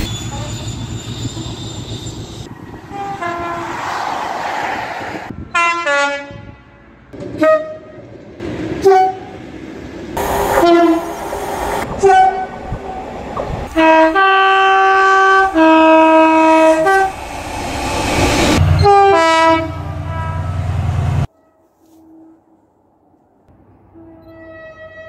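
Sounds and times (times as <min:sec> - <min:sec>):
train noise: 0:00.0 - 0:22.7
two-tone train horn blasts: 0:02.9 - 0:03.8, 0:05.5 - 0:08.1, 0:08.8 - 0:09.4, 0:10.2 - 0:12.6, 0:13.7 - 0:17.2, 0:18.5 - 0:22.4, 0:23.9 - 0:25.0.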